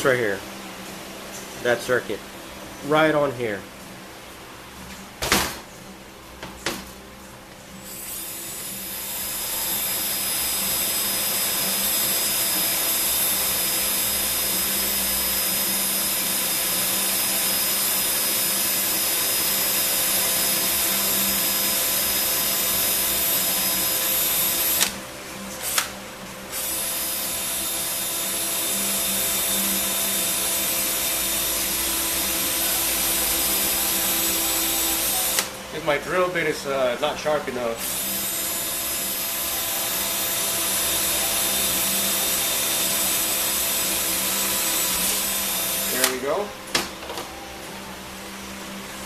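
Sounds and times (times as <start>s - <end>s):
cordless drill boring metal: 7.9s - 25.0s, 25.6s - 25.9s, 26.5s - 36.6s, 37.7s - 46.4s
drill click: 19.8s - 25.0s, 25.6s - 35.6s, 37.8s - 47.2s.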